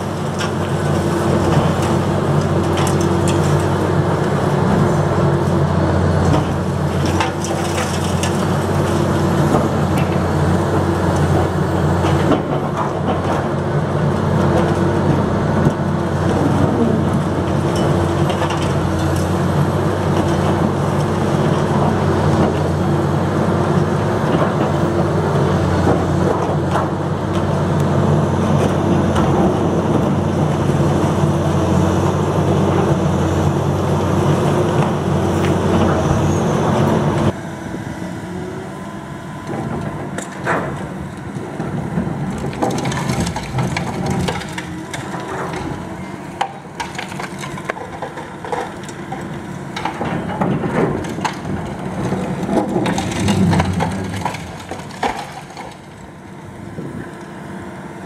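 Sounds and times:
excavator diesel engine: 0.0 - 58.0
concrete cracking and crunching: 40.1 - 56.4.

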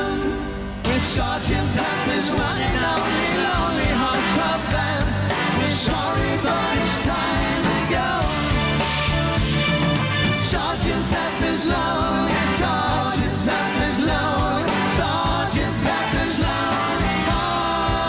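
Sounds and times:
man singing lead vocal: 0.0 - 8.8, 10.4 - 18.0
live rock band playing: 0.0 - 18.0.

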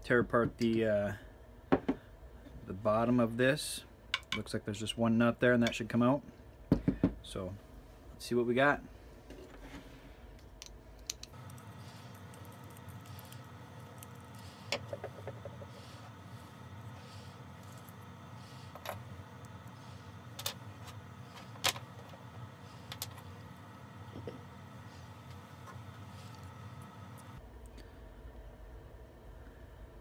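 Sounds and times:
faint steady hum: 0.0 - 30.0.

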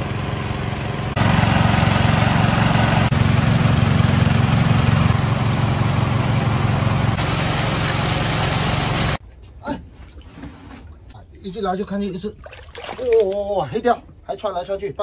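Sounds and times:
engine humming: 0.0 - 9.2.

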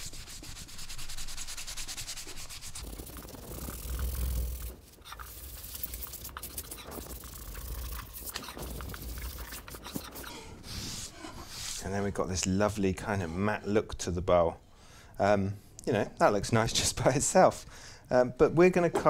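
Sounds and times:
cloth rag rubbing wood: 0.0 - 11.9.

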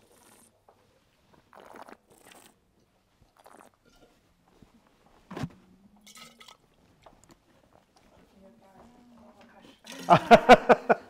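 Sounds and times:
person slurping wine: 0.0 - 0.6, 1.5 - 2.6, 3.3 - 4.1.

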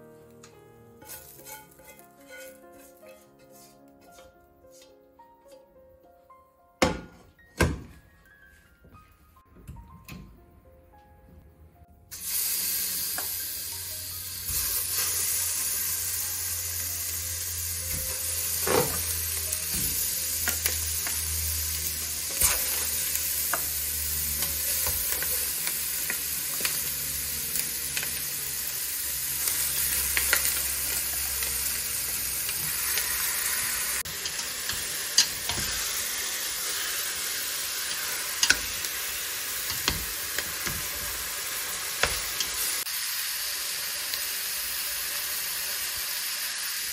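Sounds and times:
chicken sizzling in hot oil: 1.0 - 2.6, 12.1 - 46.9.

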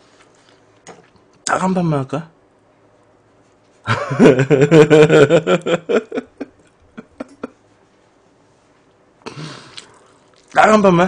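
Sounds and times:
man laughing loudly: 3.9 - 7.6
breath out: 9.2 - 10.3.

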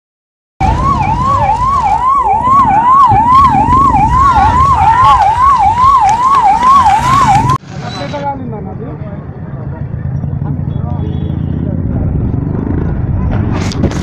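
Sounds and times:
heavy low rumbling: 0.6 - 7.6
siren sweeping up and down: 0.6 - 7.6.

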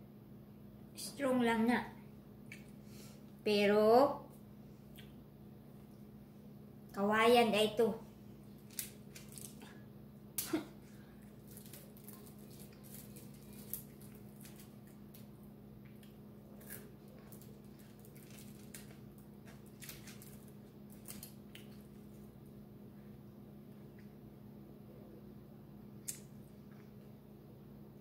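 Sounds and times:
steady low hum: 0.0 - 28.0
eating with hands: 8.5 - 22.3.

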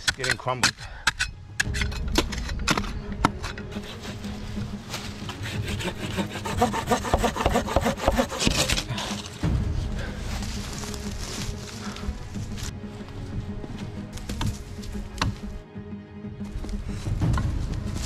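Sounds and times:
saw cutting dry branch: 3.7 - 4.3, 5.0 - 9.4.

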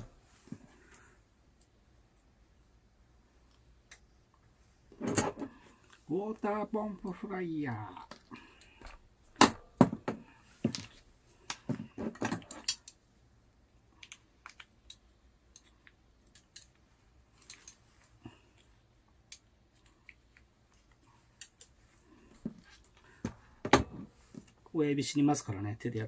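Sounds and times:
small parts clicking on a mat: 13.9 - 16.8.

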